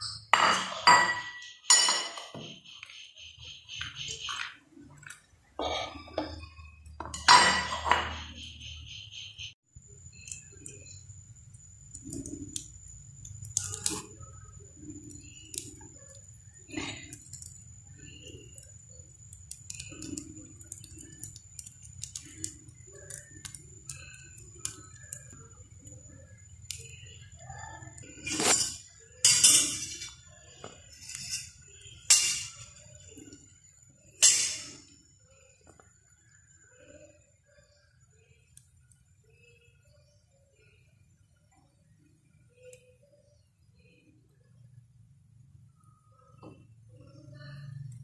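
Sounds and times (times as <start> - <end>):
loud dish clatter: 0.0 - 2.5, 7.0 - 8.3
utensils and dishes clinking: 0.0 - 2.7, 5.0 - 8.4, 28.2 - 30.3, 30.9 - 32.8, 34.2 - 34.9.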